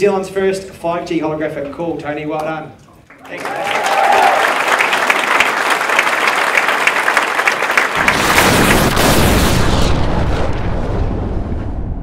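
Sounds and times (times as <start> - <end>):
audience applauding: 3.1 - 9.0
deep cinematic boom with whoosh: 8.0 - 12.0.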